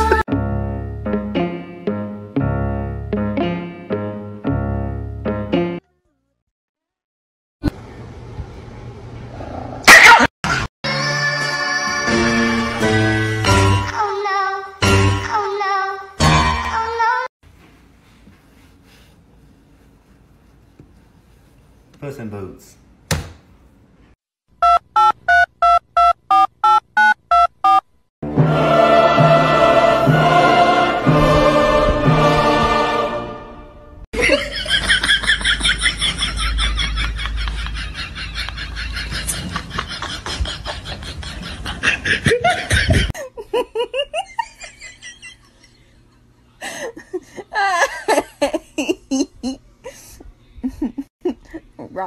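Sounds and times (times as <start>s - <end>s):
loud music: 28.2s - 33.5s
person laughing: 34.2s - 51.8s.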